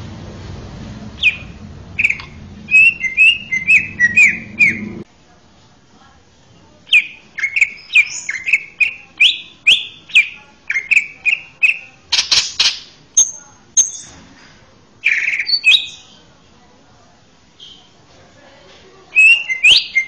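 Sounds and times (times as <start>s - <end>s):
bird singing sharp whistled notes: 1.2s - 5.0s.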